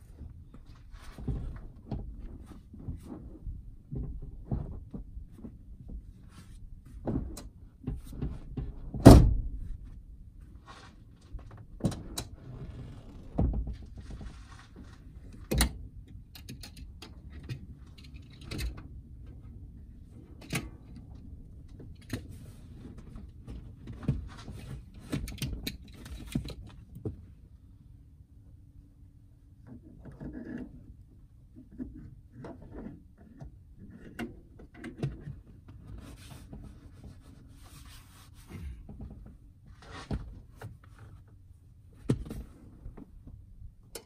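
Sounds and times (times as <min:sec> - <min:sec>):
knocks and clunks: 0:00.2 - 0:06.2, 0:11.3 - 0:15.8, 0:42.0 - 0:44.0.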